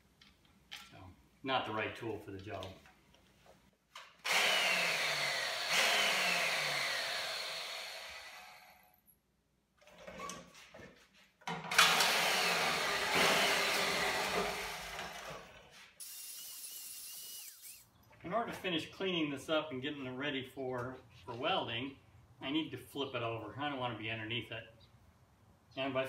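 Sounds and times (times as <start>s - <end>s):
angle grinder wire wheel whining: 4.3s - 8.6s, 16.0s - 17.9s.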